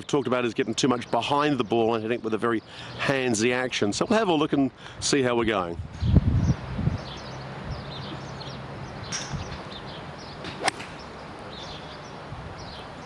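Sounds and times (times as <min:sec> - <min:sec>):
golf club striking ball: 0:10.4 - 0:11.1.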